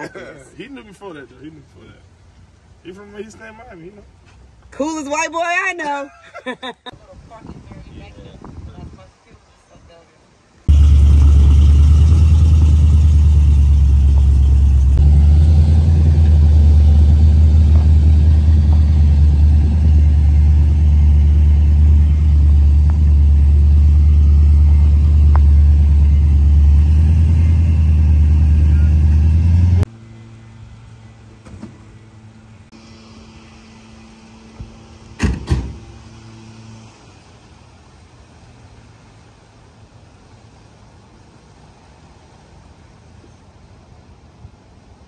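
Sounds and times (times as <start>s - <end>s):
car engine running: 10.7s - 29.9s.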